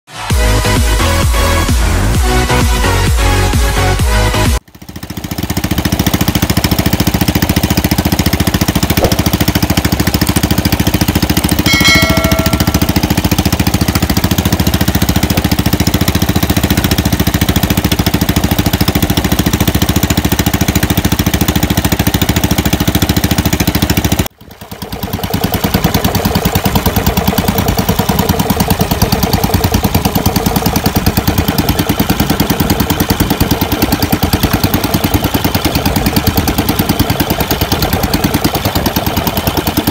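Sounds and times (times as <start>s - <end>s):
boat engine thudding: 4.8s - 39.9s
short high tone: 11.5s - 13.2s.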